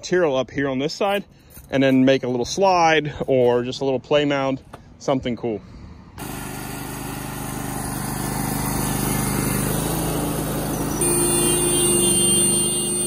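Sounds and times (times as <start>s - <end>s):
small gasoline engine running: 6.2s - 13.0s
high hydraulic whine: 10.7s - 13.0s.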